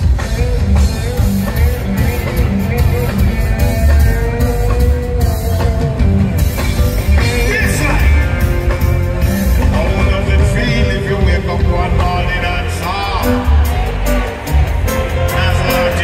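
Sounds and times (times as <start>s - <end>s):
drums: 0.0s - 16.0s
heavy electric bass line: 0.0s - 16.0s
keyboards: 0.0s - 16.0s
reggae band playing loud: 0.0s - 16.0s
person singing: 7.0s - 14.2s.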